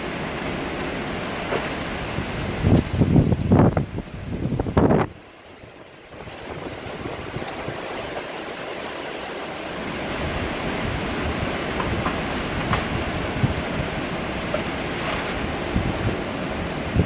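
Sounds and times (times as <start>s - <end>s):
heavy rain and wind hiss: 0.0s - 17.0s
wind gusting against microphone: 0.0s - 17.0s.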